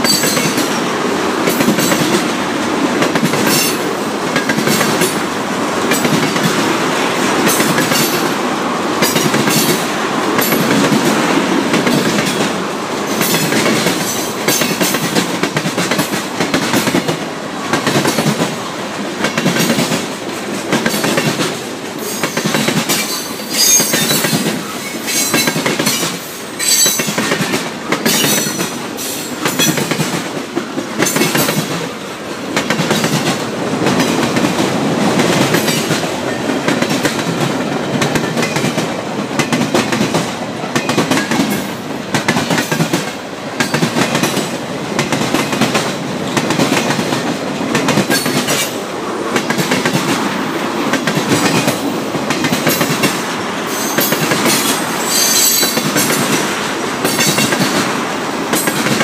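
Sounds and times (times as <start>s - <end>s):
wheel squeals: 55.0s - 55.8s.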